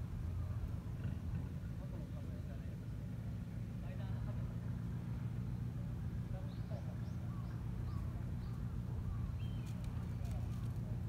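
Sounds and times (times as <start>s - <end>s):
low background rumble: 0.0s - 11.0s
small bird chirping: 6.4s - 10.7s.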